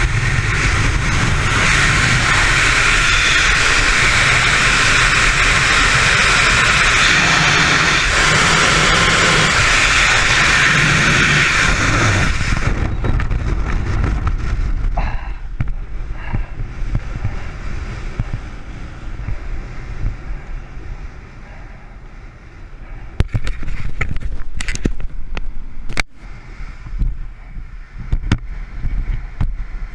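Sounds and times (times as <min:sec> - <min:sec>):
parachute canopy fluttering and popping: 0:00.0 - 0:15.0
wind rushing over microphone: 0:00.0 - 0:29.9.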